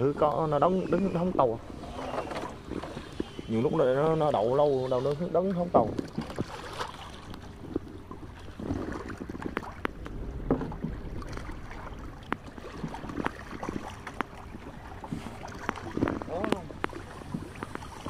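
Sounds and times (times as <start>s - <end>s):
water lapping against boat hull: 0.0s - 18.0s
low rumble: 7.4s - 17.6s.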